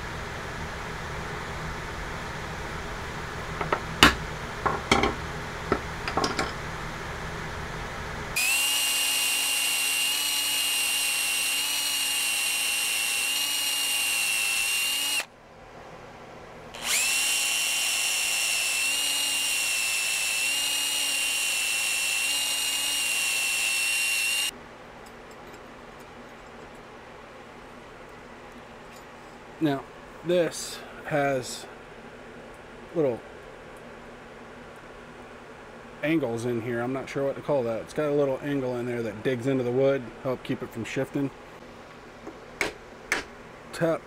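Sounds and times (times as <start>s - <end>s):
tools knocking: 3.6s - 6.6s
electric drill boring into wood: 8.4s - 15.3s, 16.8s - 24.5s.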